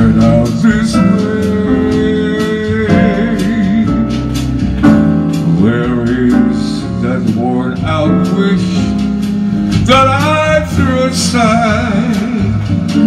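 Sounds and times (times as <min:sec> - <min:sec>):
man singing a slow ballad: 0:00.0 - 0:04.5, 0:05.4 - 0:13.0
guitar backing track: 0:02.9 - 0:13.0.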